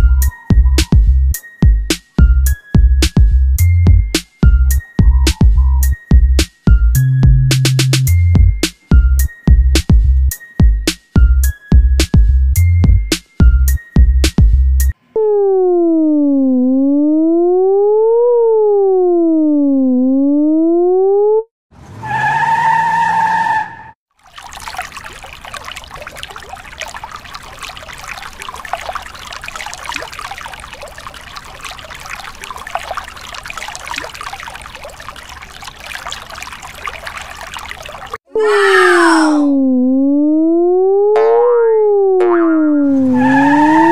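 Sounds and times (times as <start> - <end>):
siren wailing: 15.1 - 21.5, 38.4 - 43.9.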